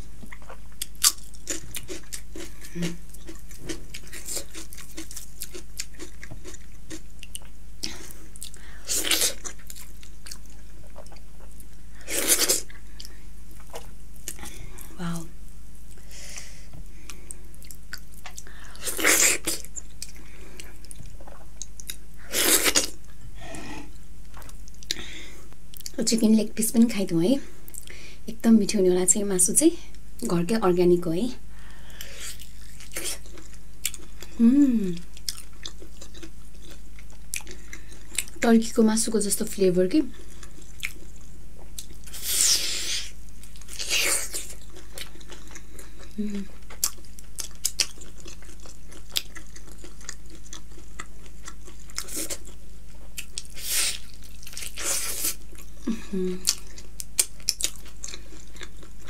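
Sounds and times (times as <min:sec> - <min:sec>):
wet chewing: 0:43.4 - 0:55.8, 0:56.4 - 0:59.0.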